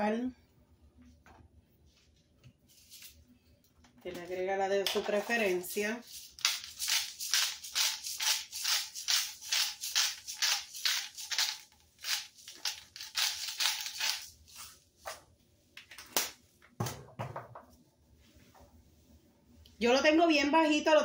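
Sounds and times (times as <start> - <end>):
salt shaker rattling: 5.2 - 14.7.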